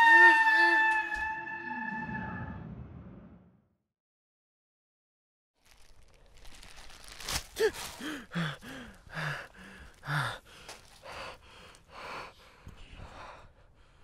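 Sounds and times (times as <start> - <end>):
man gasping and panting: 7.4 - 14.0
man whimpering cries: 7.6 - 9.4.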